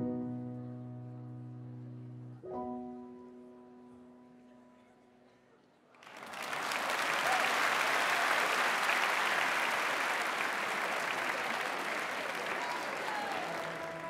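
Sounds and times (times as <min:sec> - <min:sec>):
audience applauding: 0:06.0 - 0:14.0.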